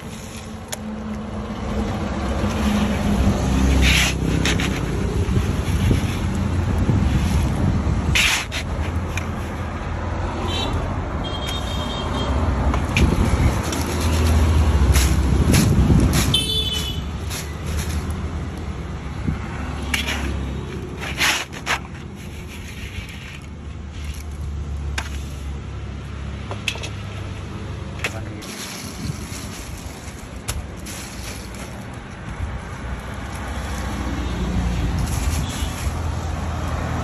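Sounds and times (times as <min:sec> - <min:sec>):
sand rattling in a basket: 0:02.4 - 0:09.8, 0:12.8 - 0:18.9, 0:19.7 - 0:25.4, 0:28.4 - 0:36.9
scraping in sand: 0:02.5 - 0:09.7, 0:19.8 - 0:24.3, 0:34.9 - 0:36.1.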